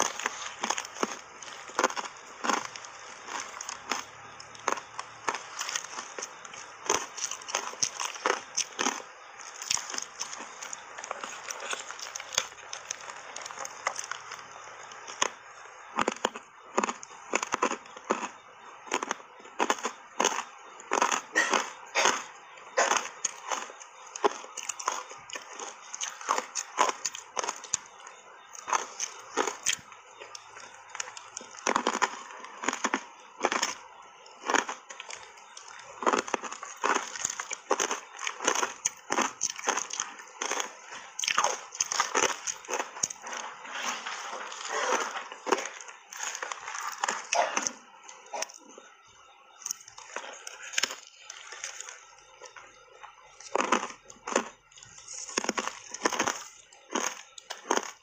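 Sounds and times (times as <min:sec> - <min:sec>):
ice crunched between teeth: 0:00.0 - 0:48.6, 0:49.6 - 0:52.6, 0:53.4 - 0:58.0.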